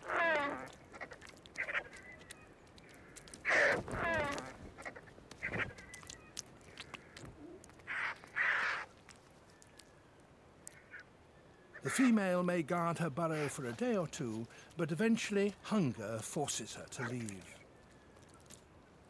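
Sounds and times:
faint clicks: 0:00.6 - 0:08.4, 0:09.0 - 0:10.9.

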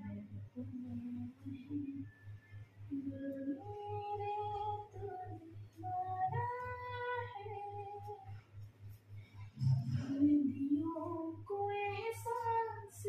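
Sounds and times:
woman singing long held notes: 0:02.9 - 0:08.3
steady low beat: 0:02.9 - 0:11.3.

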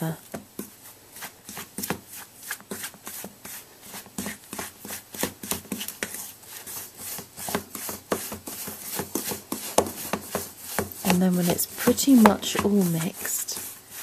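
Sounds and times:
fork scraping in metal bowl: 0:01.2 - 0:14.0.

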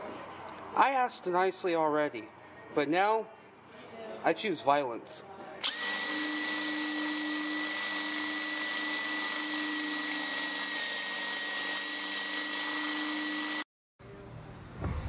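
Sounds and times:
power drill boring into metal: 0:05.6 - 0:13.7.

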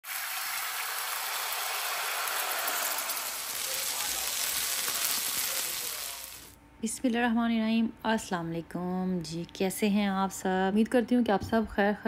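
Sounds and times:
chicken sizzling in hot oil: 0:00.0 - 0:06.5.

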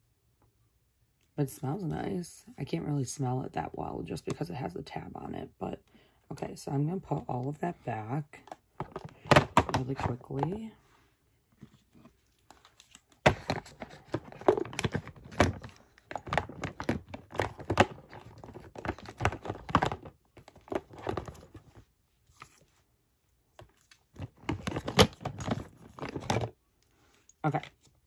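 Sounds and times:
plastic bottles clattering together: 0:08.8 - 0:10.3, 0:13.2 - 0:21.4.

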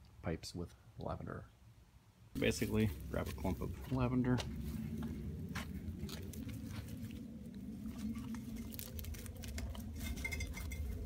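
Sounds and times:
low steady hum: 0:00.0 - 0:11.0
lavender stalks rustling: 0:02.4 - 0:11.0.

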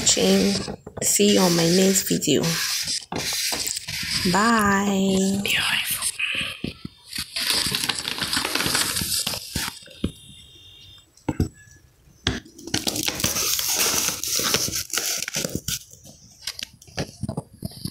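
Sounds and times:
crinkly fabric rustling: 0:07.0 - 0:10.4, 0:12.6 - 0:17.9.

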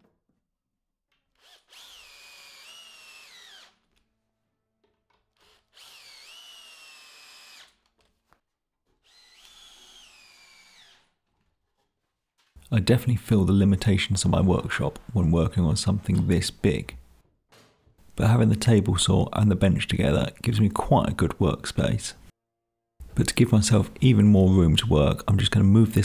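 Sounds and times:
cordless drill driving screws into wood: 0:01.3 - 0:04.0, 0:05.3 - 0:07.9, 0:09.0 - 0:11.1.

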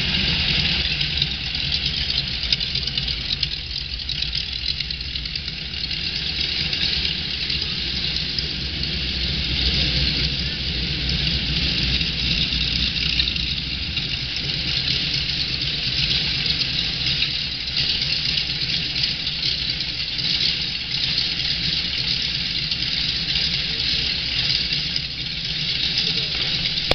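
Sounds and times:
radial engine idling: 0:00.0 - 0:26.9.

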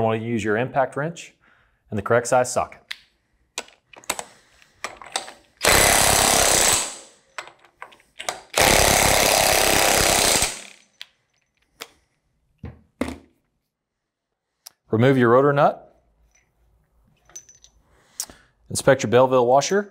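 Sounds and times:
socket clicking onto nuts: 0:07.4 - 0:08.6
impact wrench hammering: 0:08.2 - 0:11.0.

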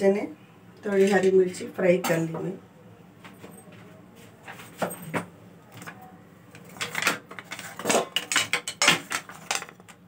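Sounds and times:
utensils and containers knocking: 0:06.6 - 0:10.0.

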